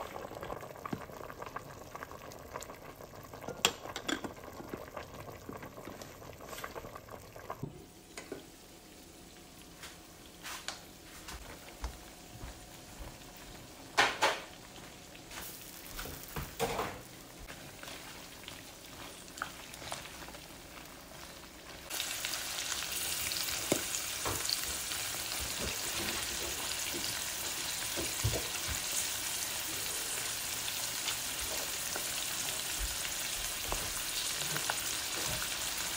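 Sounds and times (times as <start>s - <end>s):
meat and vegetables frying in a wok: 12.4s - 35.9s.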